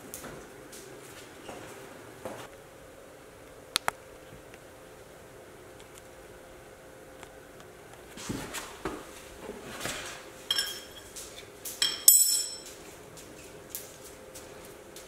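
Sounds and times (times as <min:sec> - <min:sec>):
metal fittings clinking: 0:10.5 - 0:11.1, 0:11.8 - 0:12.7.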